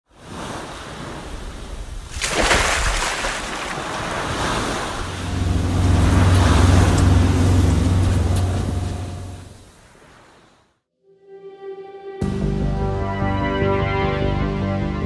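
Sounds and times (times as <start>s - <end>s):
ocean waves washing in: 0.1s - 10.8s
boat engine humming: 3.5s - 9.8s.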